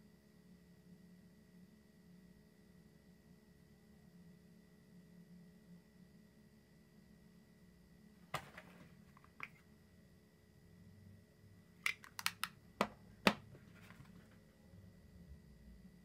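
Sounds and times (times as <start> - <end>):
small sharp clicks and taps: 11.8 - 13.5.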